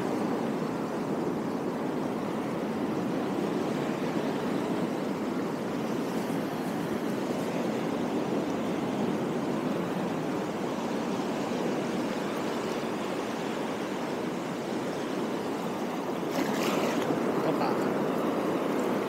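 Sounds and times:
sea water washing over rocks: 0.0 - 19.0.

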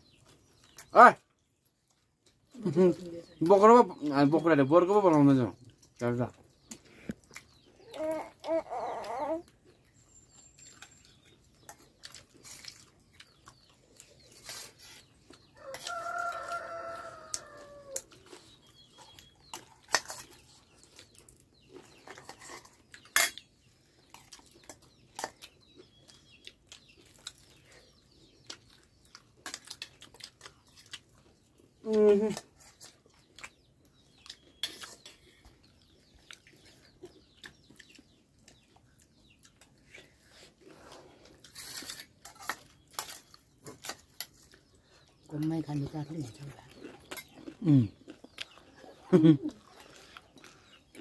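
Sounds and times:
rooster crowing: 15.6 - 18.0.

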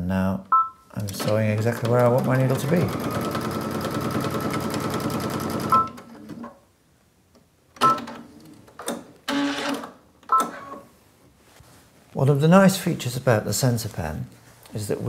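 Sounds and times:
sewing machine stitching: 1.1 - 6.4.

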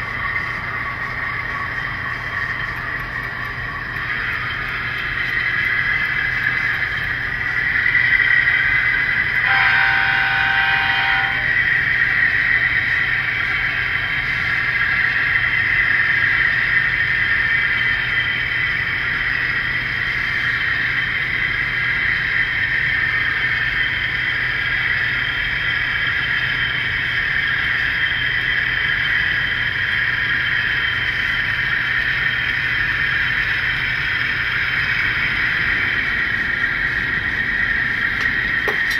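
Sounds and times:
model locomotive engine drone: 0.0 - 38.9
locomotive horn blast: 9.4 - 11.6.

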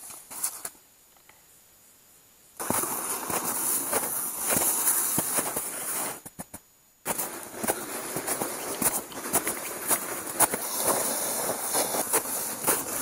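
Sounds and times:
footsteps in snow: 7.1 - 13.0.

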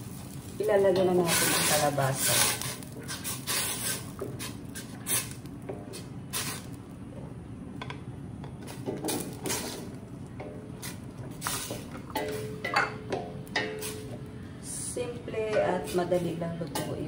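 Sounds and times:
wooden spoon scraping metal pot: 1.0 - 5.3.

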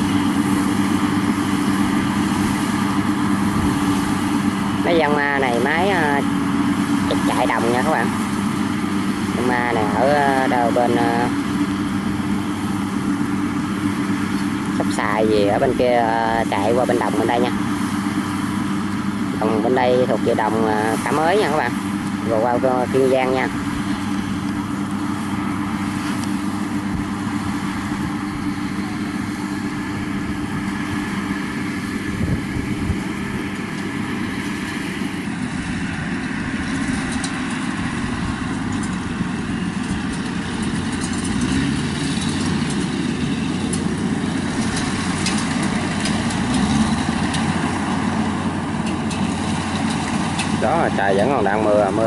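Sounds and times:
diesel engine hum: 0.0 - 52.0
clatter of cutter and threshing drum: 36.6 - 51.5.

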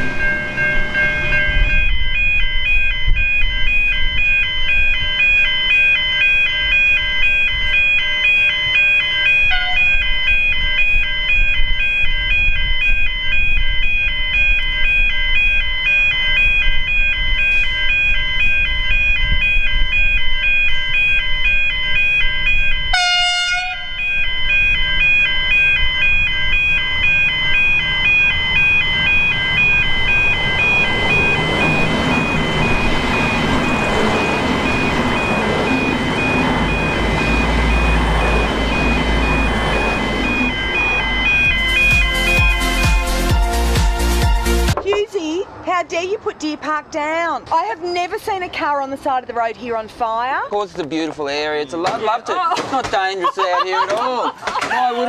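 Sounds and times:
level crossing warning bells: 0.0 - 50.6, 53.1 - 55.0
low rumble: 23.9 - 42.8.

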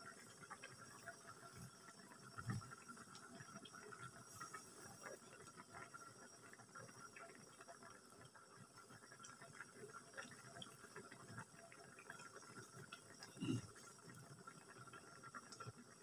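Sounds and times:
sauce simmering in covered wok: 0.0 - 16.0
soft ticks and pops: 0.0 - 16.0.

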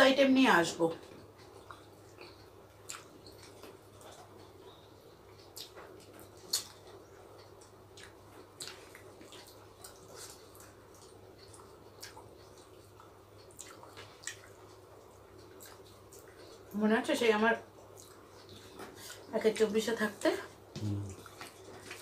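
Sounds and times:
faint steady hum: 0.0 - 22.0
lip smacks and mouth clicks: 1.4 - 4.5, 5.4 - 16.7
people eating wet mouth sounds: 1.4 - 4.5, 5.4 - 16.8, 20.7 - 22.0.

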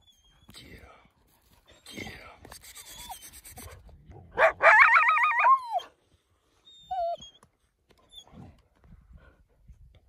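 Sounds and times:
dog whining: 6.7 - 7.5.

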